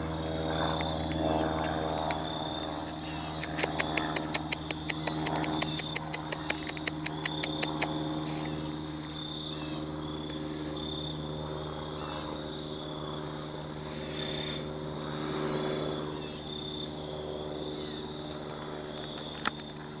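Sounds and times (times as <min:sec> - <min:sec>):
low engine-like drone: 0:00.0 - 0:20.0
sharp click: 0:03.4 - 0:08.5.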